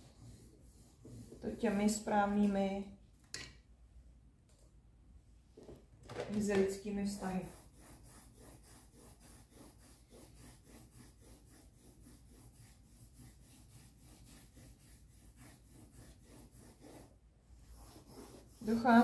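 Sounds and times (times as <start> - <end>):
pencil shading on paper: 0.0 - 2.0, 7.2 - 19.0.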